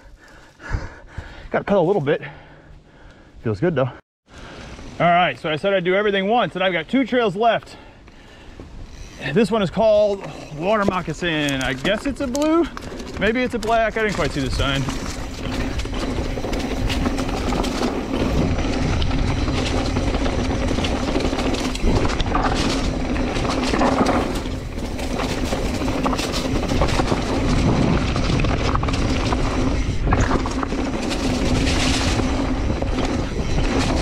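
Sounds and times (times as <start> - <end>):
bike tyres rolling over dirt: 4.4 - 34.0
bike clattering: 8.9 - 34.0.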